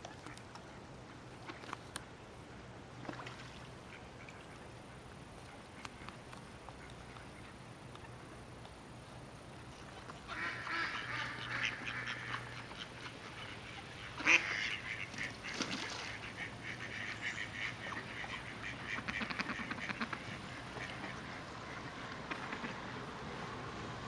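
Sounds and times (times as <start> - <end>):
ducks quacking: 10.3 - 22.9.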